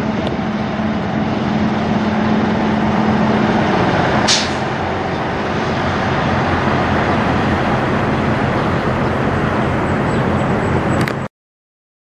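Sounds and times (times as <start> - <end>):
truck diesel engine droning: 0.0 - 11.3.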